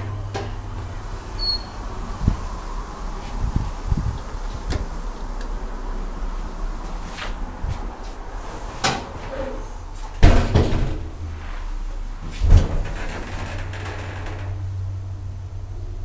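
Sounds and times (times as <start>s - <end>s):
elevator doors thudding shut: 0.0s - 2.5s, 10.2s - 11.3s, 12.2s - 15.2s
low steady hum: 0.0s - 16.0s.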